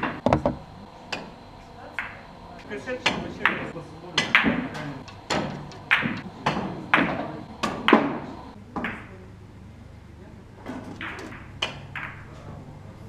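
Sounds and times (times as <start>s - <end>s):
billiard balls clacking: 0.0s - 1.4s, 2.0s - 9.1s, 10.6s - 12.5s.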